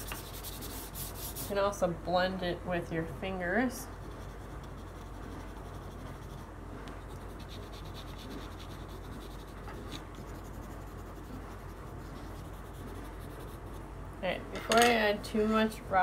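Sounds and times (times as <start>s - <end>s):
pencil scratching on paper: 0.0s - 1.6s, 3.9s - 13.8s
low steady hum: 0.0s - 16.0s.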